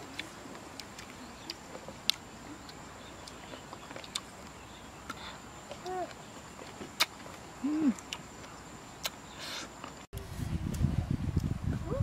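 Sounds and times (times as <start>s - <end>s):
chewing: 0.1s - 4.5s.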